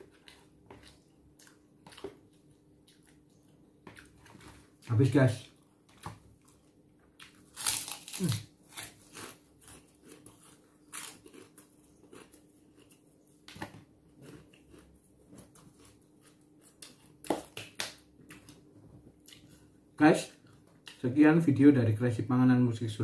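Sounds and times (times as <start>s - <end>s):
chewing crunches: 0.0s - 4.9s, 5.9s - 18.6s
cracker crunching: 0.0s - 19.7s.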